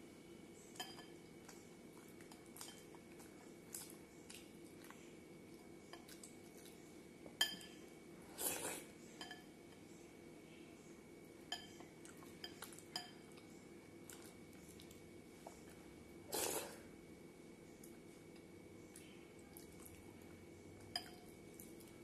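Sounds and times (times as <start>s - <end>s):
mouth sucking while eating: 8.4s - 8.9s, 16.3s - 16.8s.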